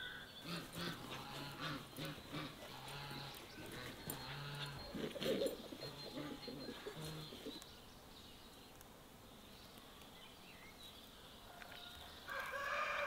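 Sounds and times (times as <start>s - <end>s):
dove cooing: 0.0s - 7.6s
faint bird chirps: 1.7s - 8.8s.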